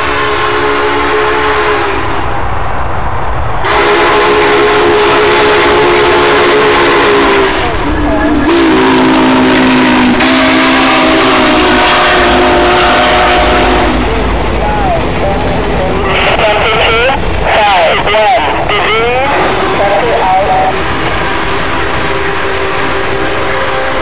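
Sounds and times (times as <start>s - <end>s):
train rumble and hiss: 0.0s - 24.0s
steam whistle chord: 3.6s - 14.1s, 19.5s - 24.0s.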